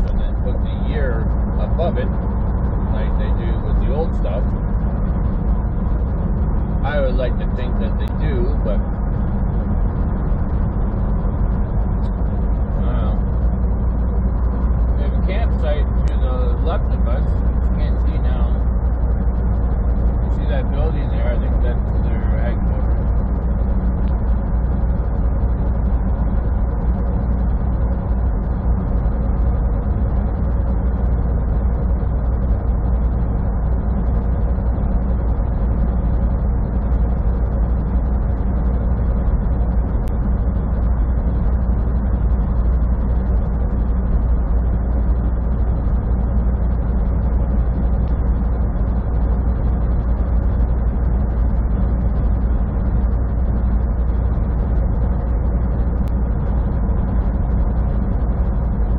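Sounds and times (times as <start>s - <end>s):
diesel engine and road drone: 0.0s - 58.9s.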